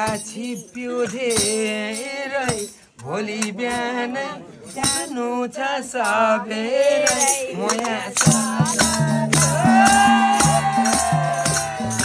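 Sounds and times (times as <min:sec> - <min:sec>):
percussion clinks: 0:00.0 - 0:04.0, 0:04.6 - 0:12.0
person singing long notes: 0:06.4 - 0:12.0.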